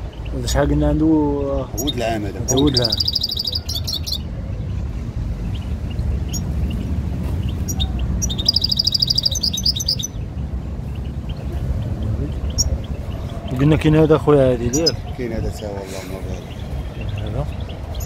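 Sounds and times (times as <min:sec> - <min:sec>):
goldfinch twittering song: 0:01.3 - 0:04.3, 0:05.4 - 0:15.6
faint bird chirps: 0:01.7 - 0:04.6, 0:07.5 - 0:10.2.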